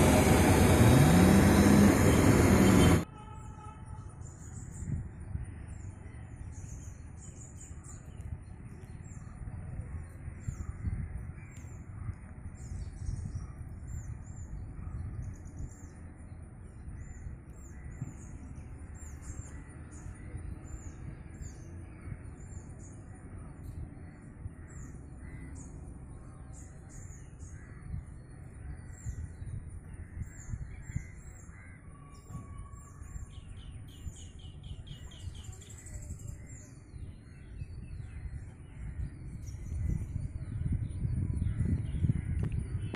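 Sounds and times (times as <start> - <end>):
steady low rumble: 0.0 - 3.0.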